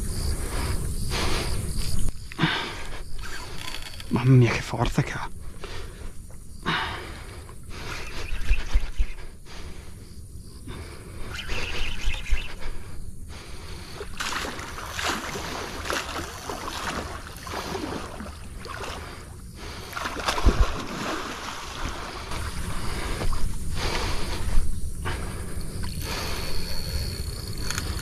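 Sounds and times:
fish splashing in water: 14.0s - 22.6s
rushing river water: 14.2s - 19.0s, 19.8s - 22.6s.

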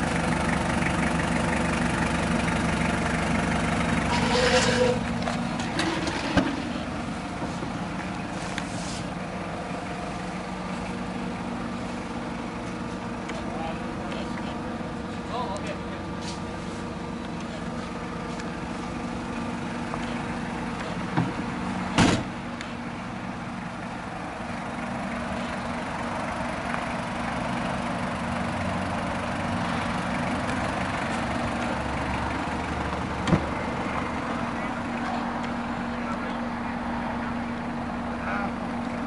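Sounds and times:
diesel engine idling: 0.0s - 39.0s
car door shutting: 21.9s - 22.3s, 33.2s - 33.5s.

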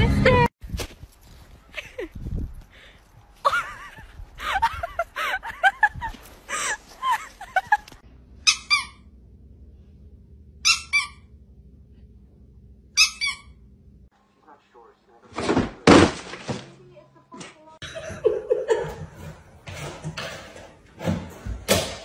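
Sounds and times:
dog whining and yelping: 8.4s - 9.0s, 10.6s - 11.2s, 13.0s - 13.5s.

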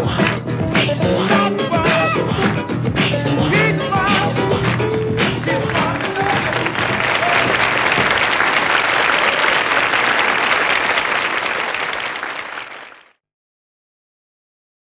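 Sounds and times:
audience applauding: 4.6s - 13.2s.

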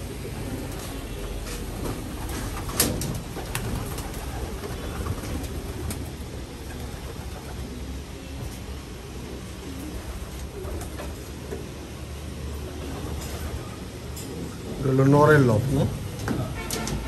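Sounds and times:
pigeons cooing: 0.0s - 15.3s.

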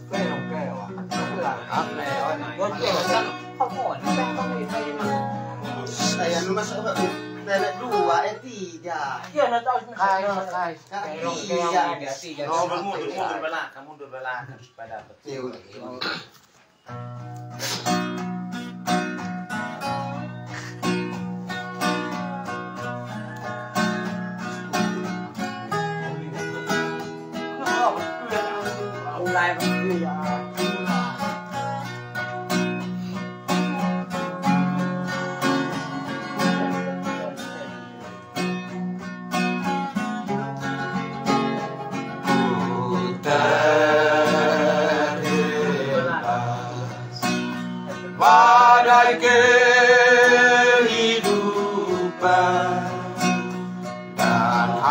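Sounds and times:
acoustic guitar playing: 0.0s - 13.6s, 16.0s - 54.9s
men singing in parts: 42.2s - 54.9s.

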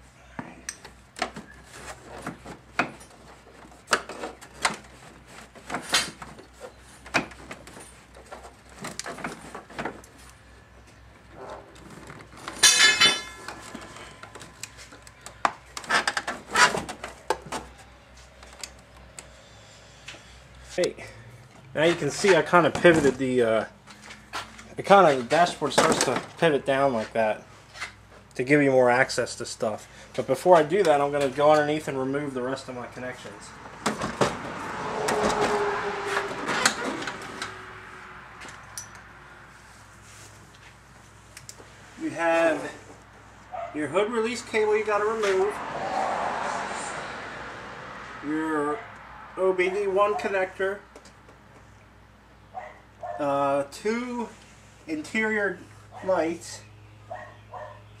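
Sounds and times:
metal tools clattering: 12.5s - 14.2s
loud ringing metallic clash: 12.6s - 13.4s
rustling and scuffing: 39.6s - 43.7s.

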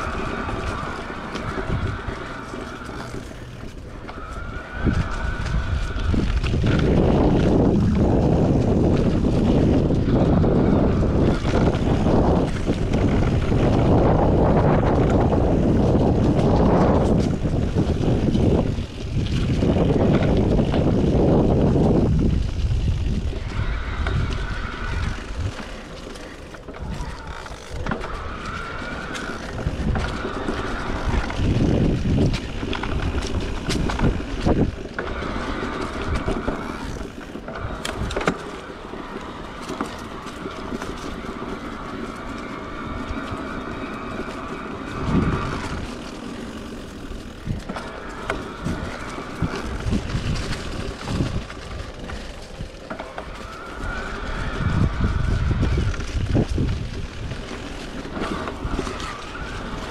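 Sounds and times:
bike knocking and rattling: 0.0s - 59.9s
tyre and wind rumble: 0.0s - 59.9s
electric motor whining: 19.6s - 59.9s.

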